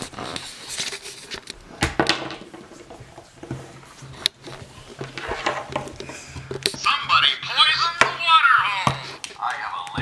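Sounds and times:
toy figures knocking on wood: 7.9 - 9.0.

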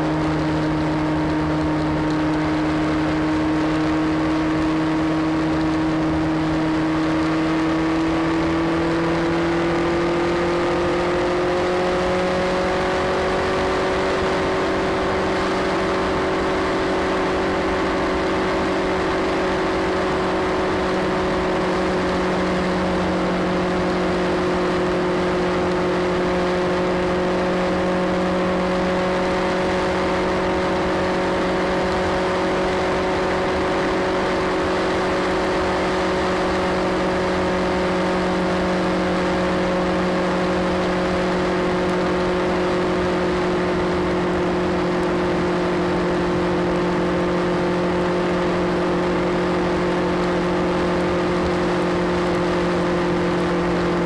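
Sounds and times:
motorcycle engine cruising: 0.0 - 54.0
wind and road noise: 0.0 - 54.0.

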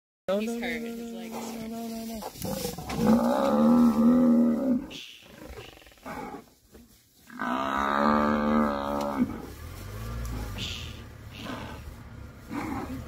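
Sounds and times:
buffalo bellowing in distress: 2.2 - 6.4, 7.3 - 13.0.

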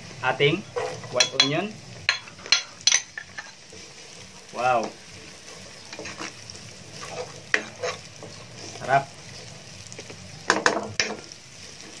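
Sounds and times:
onion and garlic sizzling in oil: 0.0 - 12.0
metal utensil clicking on pan: 1.0 - 3.6, 10.5 - 11.2.

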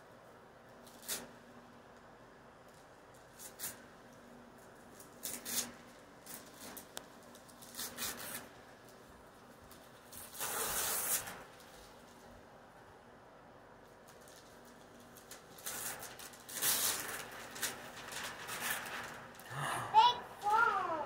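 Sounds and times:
wrapping paper tearing and crinkling: 4.9 - 8.9, 9.8 - 12.2, 14.0 - 19.4.

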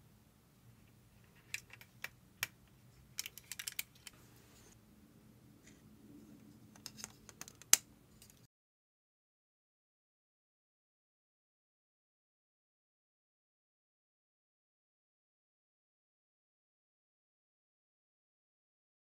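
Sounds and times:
plastic parts clicking: 1.3 - 2.6, 3.2 - 4.2, 6.7 - 8.4.

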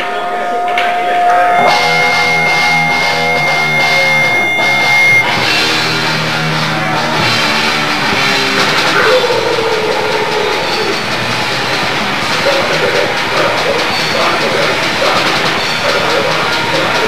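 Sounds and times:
distorted electric guitar: 0.0 - 17.0
steady high tone: 0.0 - 17.0
punk band playing live: 0.6 - 17.0.

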